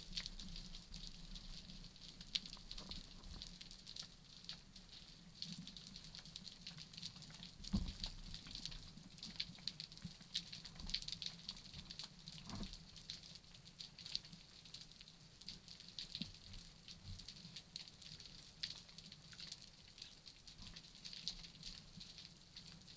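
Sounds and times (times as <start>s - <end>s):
snapping shrimp clicks underwater: 2.4s - 3.6s.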